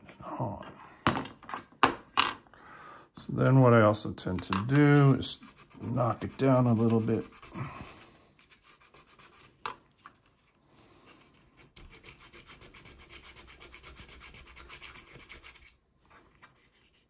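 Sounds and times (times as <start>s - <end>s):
sandpaper rubbing on plastic: 5.0s - 9.6s, 11.2s - 15.8s.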